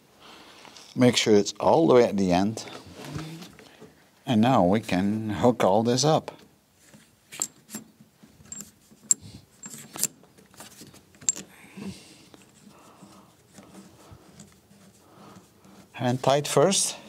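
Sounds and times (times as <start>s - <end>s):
soft rustle: 6.7s - 17.0s.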